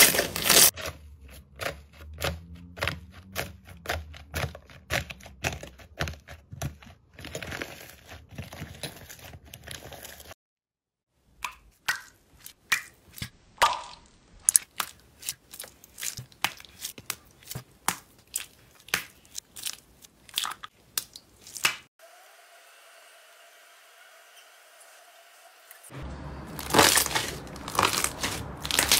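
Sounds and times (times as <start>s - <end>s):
crusted slime crackling: 14.4s - 21.8s, 26.5s - 28.9s
slime bags crinkling pops: 26.6s - 28.9s.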